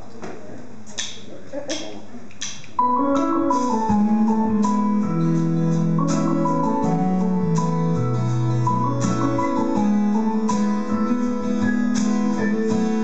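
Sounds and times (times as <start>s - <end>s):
organ-like keyboard chords: 2.8s - 13.0s
stepping bass line: 3.1s - 13.0s.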